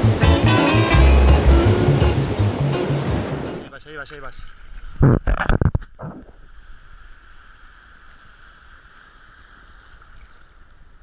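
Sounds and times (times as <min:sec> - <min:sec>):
water splash: 0:00.0 - 0:03.7.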